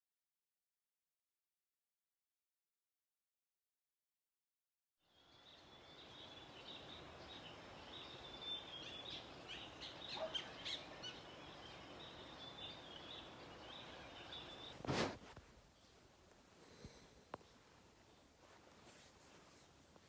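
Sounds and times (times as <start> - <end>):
small birds chirping: 5.0 - 14.9, 15.6 - 20.0
steady background hiss: 5.0 - 20.0.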